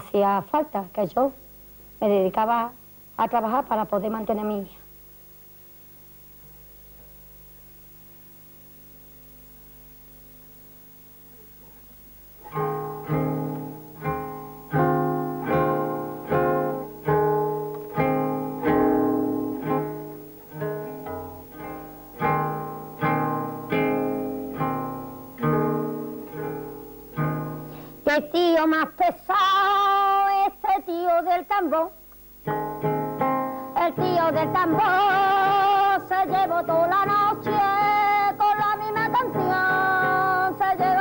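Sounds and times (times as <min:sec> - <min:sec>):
faint hum: 0:00.0 - 0:41.0
acoustic guitar strumming: 0:12.4 - 0:28.1, 0:32.4 - 0:41.0.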